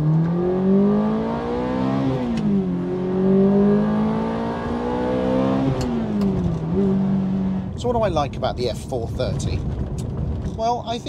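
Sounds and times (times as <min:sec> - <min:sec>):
car engine accelerating hard: 0:00.0 - 0:07.8.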